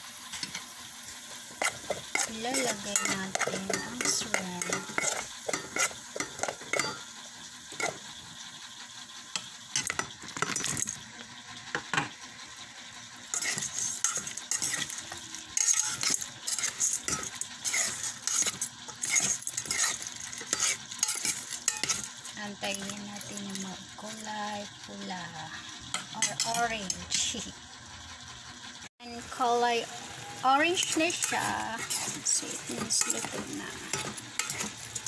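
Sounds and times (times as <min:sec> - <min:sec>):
food sizzling: 0:00.0 - 0:35.0
utensil clinking against pot: 0:01.6 - 0:07.1, 0:13.3 - 0:23.7, 0:30.8 - 0:35.0.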